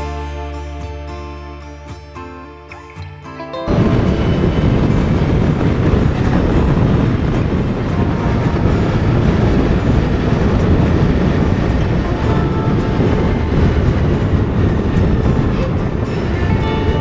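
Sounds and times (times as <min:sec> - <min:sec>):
wind rushing over microphone: 0:03.6 - 0:17.0
motorcycle engine running: 0:03.7 - 0:17.0.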